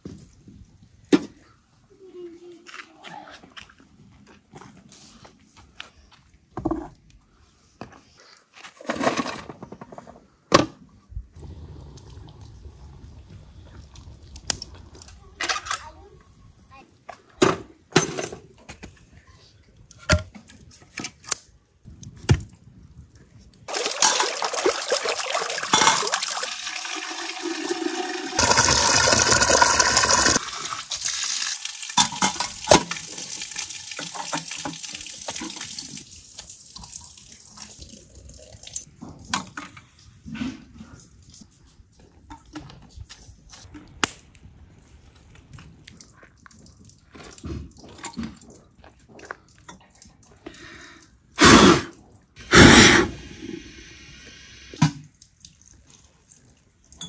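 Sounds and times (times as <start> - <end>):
water trickling: 11.4 - 15.1, 23.7 - 38.9
water pouring into metal vessel: 23.7 - 38.9.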